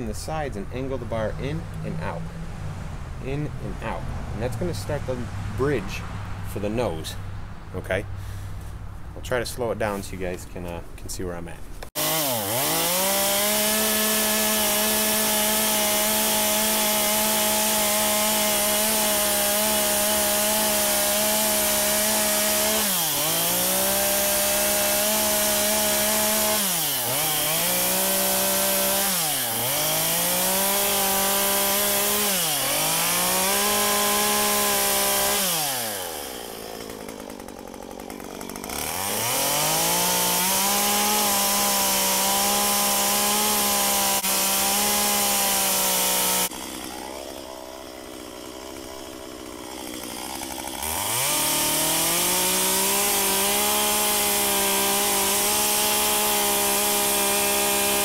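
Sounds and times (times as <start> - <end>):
chainsaw carving into log: 0.0 - 2.2, 11.9 - 58.0.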